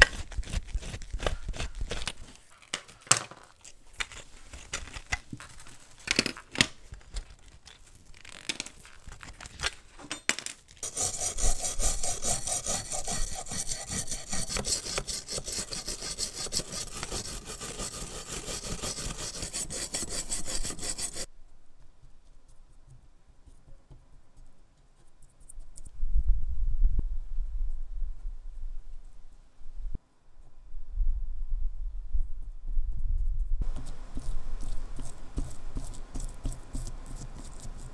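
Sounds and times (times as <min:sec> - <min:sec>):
clicks and crackles of handling: 0:00.0 - 0:10.8
wire brush scratching metal: 0:10.8 - 0:21.3.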